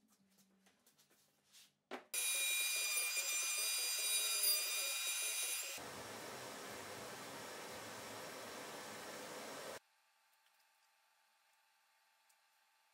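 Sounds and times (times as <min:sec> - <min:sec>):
router whining at high speed: 0:04.8 - 0:09.8.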